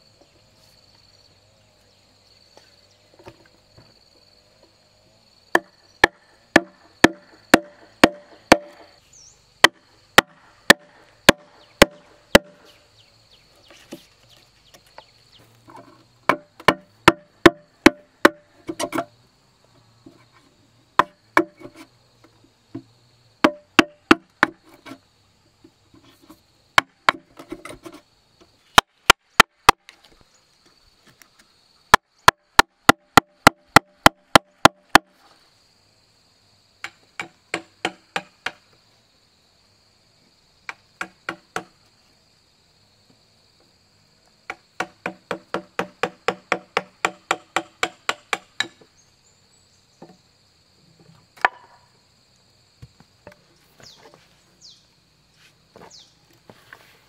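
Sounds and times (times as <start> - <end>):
hammer striking chisel into wood: 5.6 - 8.8, 9.7 - 12.6, 16.3 - 19.0, 23.4 - 24.6, 37.2 - 38.6, 44.5 - 48.8.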